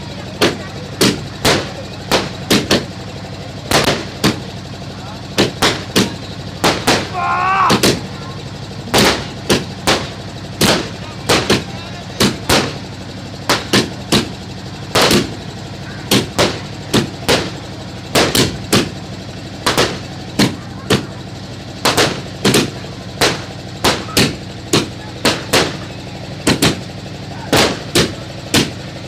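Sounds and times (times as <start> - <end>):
fireworks bangs: 3.7 - 4.6, 5.3 - 15.4, 16.1 - 19.0, 21.8 - 26.9, 27.5 - 28.8.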